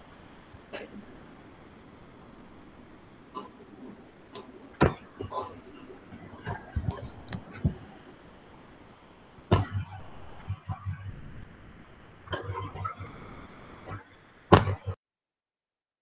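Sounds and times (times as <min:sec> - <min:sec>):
handling knocks and clicks: 0:06.4 - 0:07.9.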